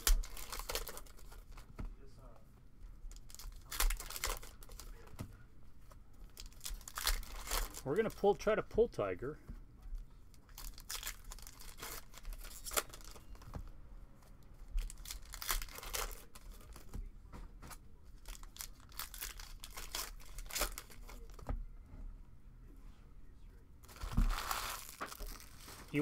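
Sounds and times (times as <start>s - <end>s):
foil wrapper tearing and crinkling: 0.0s - 1.6s, 3.1s - 5.0s, 6.3s - 8.2s, 10.5s - 13.2s, 14.8s - 16.8s, 18.2s - 21.4s, 23.8s - 26.0s.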